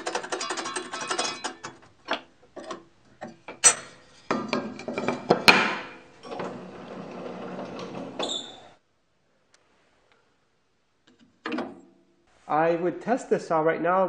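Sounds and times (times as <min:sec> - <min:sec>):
wooden insert knocking and clattering: 0:04.3 - 0:06.0.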